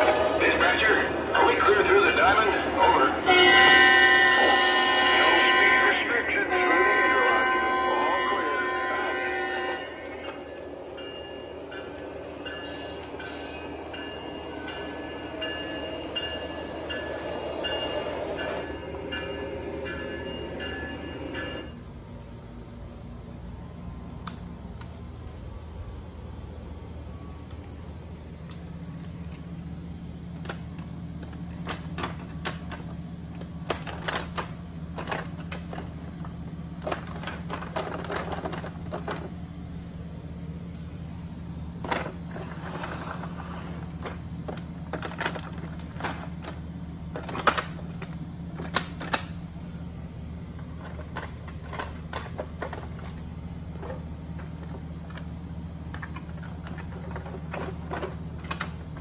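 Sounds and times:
steady low hum: 0:00.0 - 0:59.0
metallic clicks of model train cars: 0:41.8 - 0:49.9, 0:50.6 - 0:59.0.

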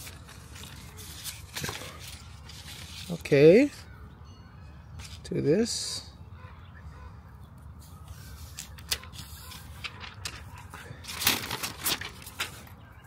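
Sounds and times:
plastic crinkling and rustling: 0:00.0 - 0:03.3, 0:08.4 - 0:12.8.

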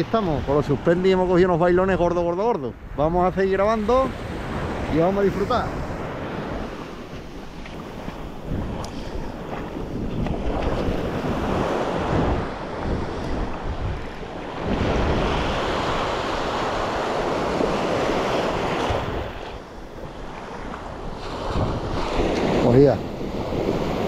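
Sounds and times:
sea surf washing on beach: 0:00.0 - 0:24.0
wind buffeting microphone: 0:00.0 - 0:24.0.

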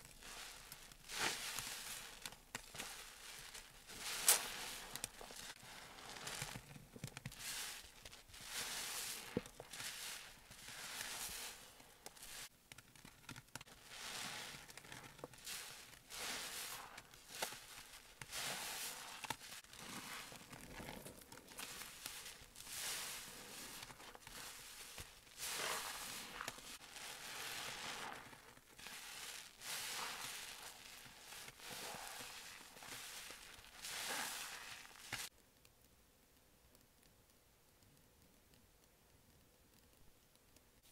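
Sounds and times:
soapy sponge squelching: 0:00.0 - 0:06.6, 0:07.3 - 0:12.5, 0:13.7 - 0:35.3.

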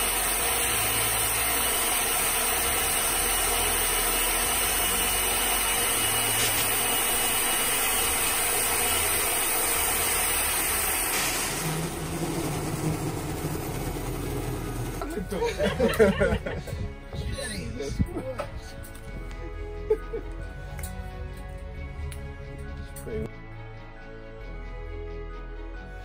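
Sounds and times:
jet engine roaring: 0:00.0 - 0:15.3
thin steady whine: 0:00.0 - 0:20.2.

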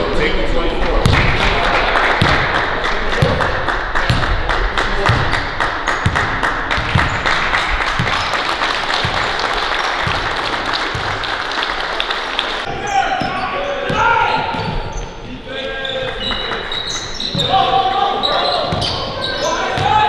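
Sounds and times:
applause-like crowd noise: 0:00.8 - 0:12.7.

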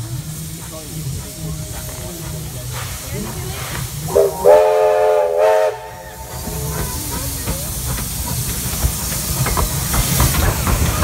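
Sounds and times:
locomotive rumble: 0:00.0 - 0:11.0
steam hiss: 0:00.0 - 0:11.0
steam locomotive whistle: 0:04.1 - 0:06.9.

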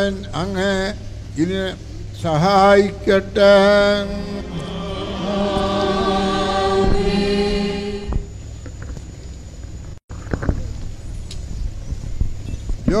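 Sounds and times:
low room noise: 0:00.0 - 0:10.0
choir singing a sustained chord: 0:03.5 - 0:08.5.

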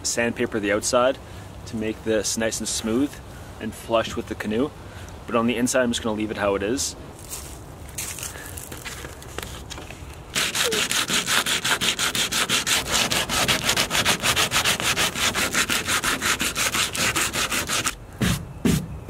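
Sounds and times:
sandpaper scraping plastic: 0:08.7 - 0:18.8.

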